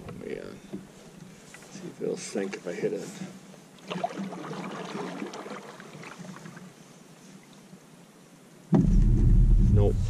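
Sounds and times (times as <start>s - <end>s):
water sounds: 3.7s - 7.7s
canoe hull knocking into log: 8.7s - 9.5s.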